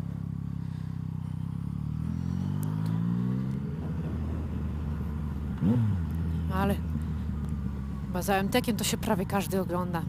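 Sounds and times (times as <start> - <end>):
motorcycle engine revving: 0.0 - 9.5.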